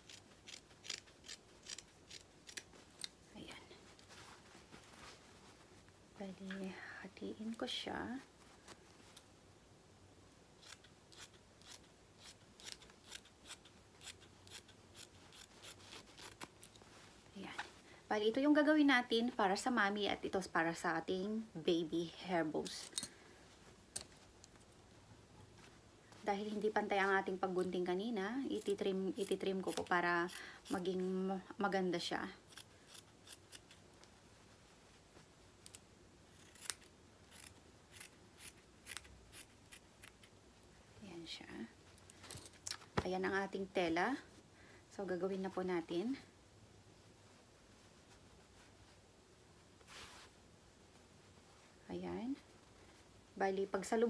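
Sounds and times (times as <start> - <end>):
scissors snipping fabric: 0.0 - 3.1, 10.6 - 16.8, 28.6 - 30.9, 35.6 - 40.3.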